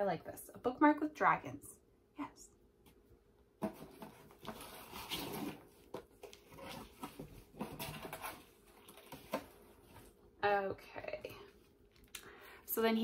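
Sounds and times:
paper and packaging rustling: 3.6s - 10.2s.

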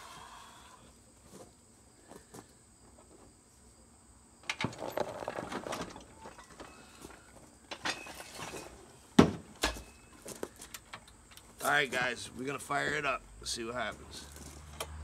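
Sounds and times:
metal clatter and knocks: 4.4s - 6.8s, 7.7s - 10.1s.

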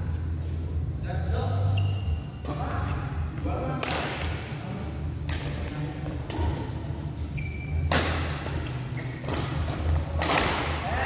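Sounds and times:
steady low hum: 0.0s - 11.0s
shoe squeak on court: 1.7s - 2.6s, 7.2s - 8.0s, 8.6s - 9.6s
rackets hitting shuttlecock: 3.7s - 4.5s, 5.2s - 6.8s, 7.8s - 11.0s.

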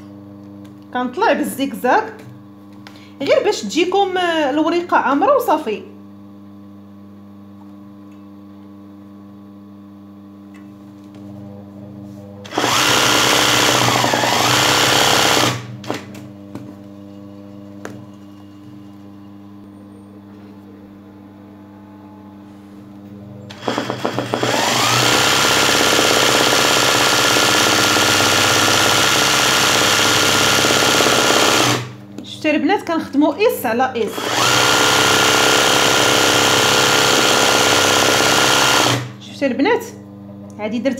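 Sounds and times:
sewing machine stitching: 12.5s - 15.7s, 23.5s - 32.0s, 34.1s - 39.1s
low steady hum: 13.5s - 23.7s.

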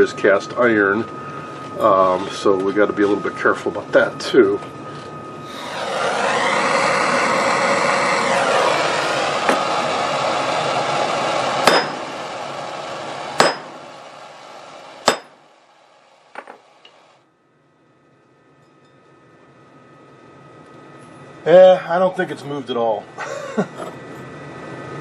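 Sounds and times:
propane torch hissing: 5.4s - 17.0s
hammer striking metal: 11.6s - 12.1s, 13.4s - 13.8s, 15.0s - 15.4s.

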